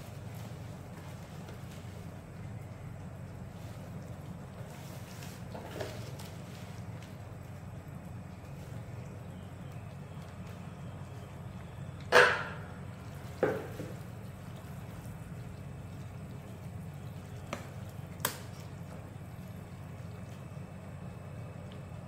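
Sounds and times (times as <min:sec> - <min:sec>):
steady low hum: 0:00.0 - 0:22.0
ladle knocking and sloshing: 0:12.1 - 0:19.1.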